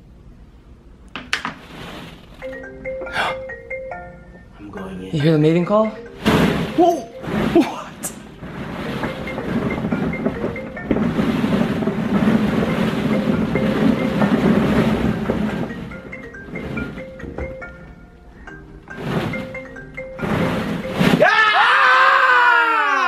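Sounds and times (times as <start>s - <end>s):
plastic balls rattling: 1.2s - 2.6s, 6.1s - 17.8s, 18.9s - 21.2s
mallet percussion music: 2.4s - 8.1s, 12.7s - 21.1s.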